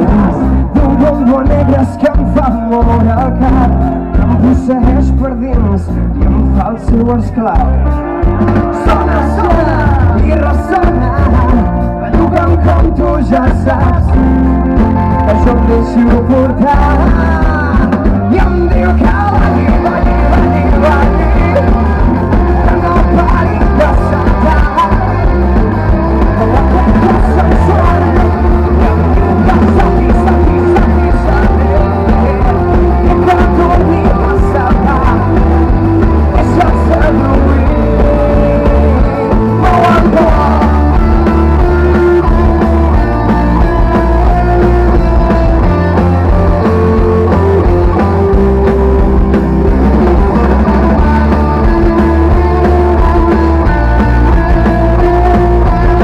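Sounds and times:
bass guitar: 0.0s - 56.0s
drum kit: 0.0s - 56.0s
electric guitars: 0.0s - 56.0s
person singing: 0.0s - 56.0s.

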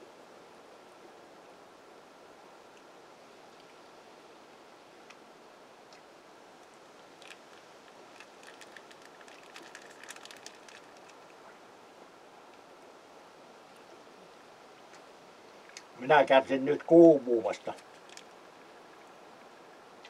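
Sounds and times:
faint outdoor hiss: 0.0s - 20.0s
small sharp crackles and clicks: 5.9s - 11.6s, 17.7s - 18.4s.

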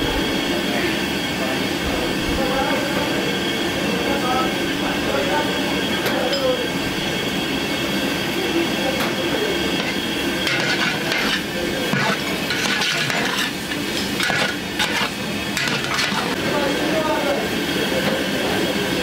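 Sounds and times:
kitchen drone: 0.0s - 19.0s
metal paddle scraping a pot: 9.8s - 16.5s.

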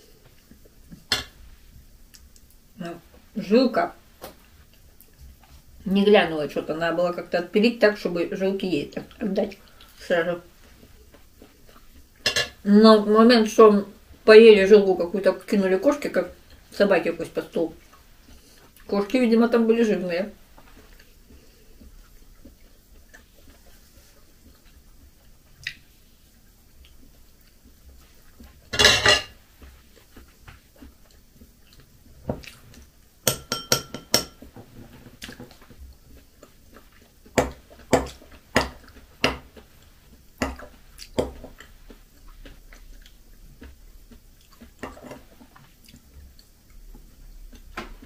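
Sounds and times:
dishes clattering: 1.1s - 1.4s, 12.2s - 12.6s, 28.7s - 29.4s, 33.3s - 35.6s
fork clinking on ceramic plates: 12.2s - 12.6s, 28.8s - 29.3s, 33.3s - 34.5s.

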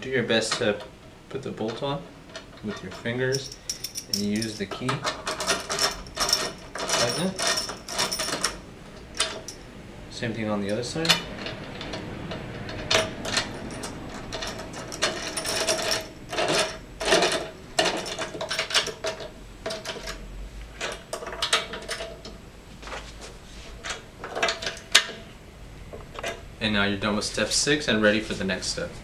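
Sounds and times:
metal key clicking and scraping: 2.3s - 9.6s, 10.7s - 20.2s.

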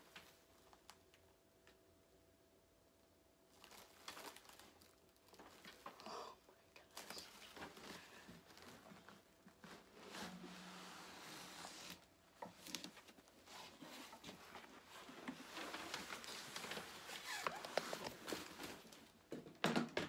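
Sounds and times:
plastic wrap rustling: 3.5s - 6.0s, 6.8s - 19.3s.

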